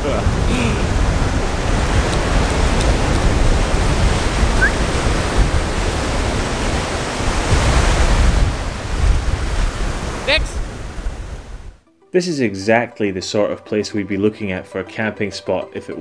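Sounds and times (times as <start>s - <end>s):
strong wind on microphone: 0.0s - 11.8s.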